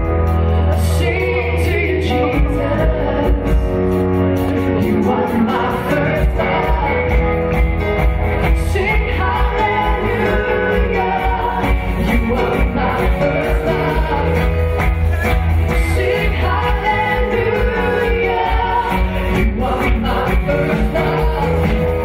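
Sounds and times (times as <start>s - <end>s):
guitars: 0.0s - 22.0s
sustained bass: 0.0s - 22.0s
voices singing together: 4.8s - 7.2s, 8.5s - 14.6s, 15.6s - 22.0s.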